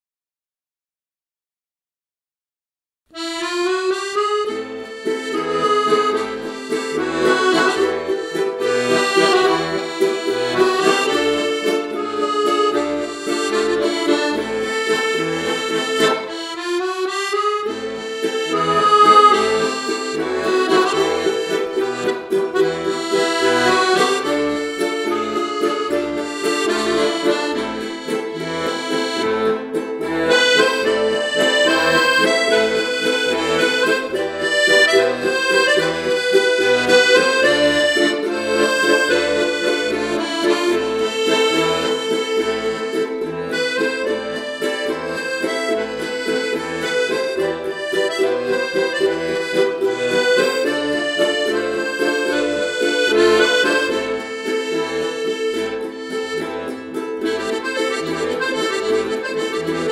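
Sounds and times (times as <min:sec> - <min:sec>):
piano accordion melody: 0:03.1 - 0:59.9
ukulele accompaniment: 0:03.2 - 0:59.9.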